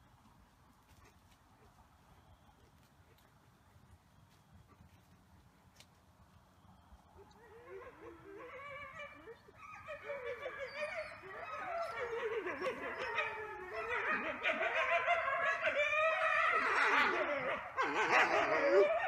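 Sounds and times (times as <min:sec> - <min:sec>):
wolves howling: 0:07.2 - 0:19.0.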